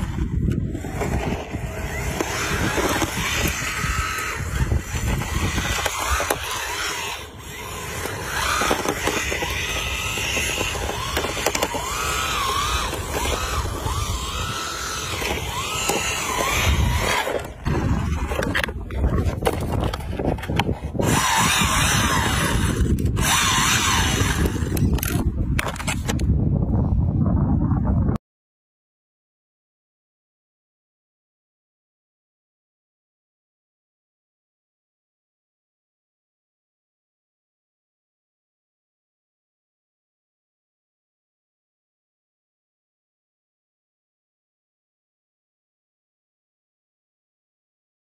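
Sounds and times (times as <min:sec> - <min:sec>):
electric motor whining: 0:00.0 - 0:26.2.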